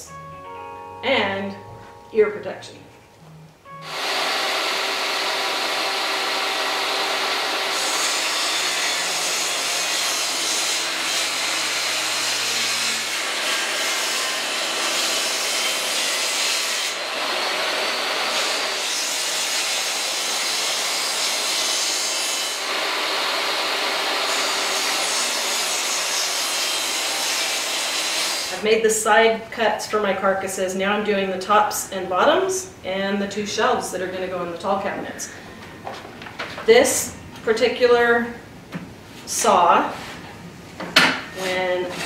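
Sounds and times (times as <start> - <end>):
table saw cutting plywood: 3.8 - 28.6.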